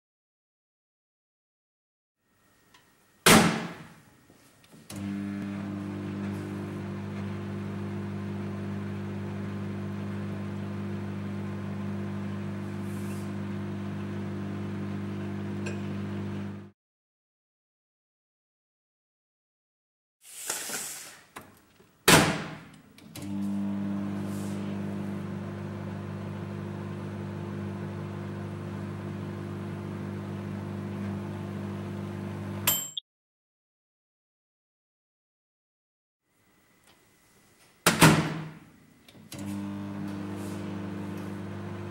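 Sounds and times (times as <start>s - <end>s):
microwave oven humming: 4.9s - 16.7s, 23.1s - 32.7s, 38.4s - 41.9s.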